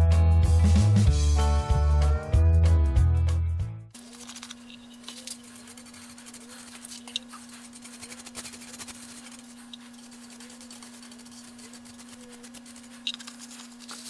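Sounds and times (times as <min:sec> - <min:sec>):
dauber scrubbing on steel plate: 0:04.0 - 0:14.0.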